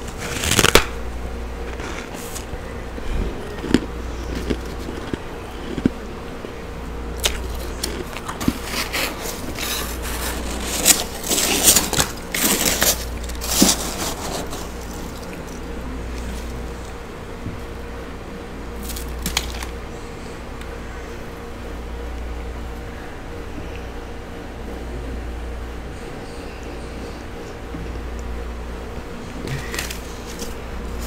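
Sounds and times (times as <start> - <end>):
frost crunching and scraping: 0.0 - 17.7, 18.7 - 20.0, 29.4 - 31.0
freezer hum: 0.0 - 31.0.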